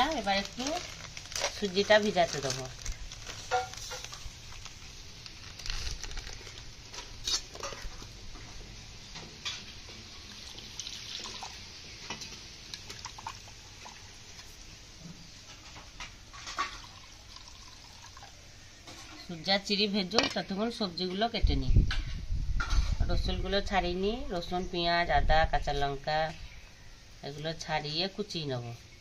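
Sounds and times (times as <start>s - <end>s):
plastic packet rustling: 0.0s - 7.9s.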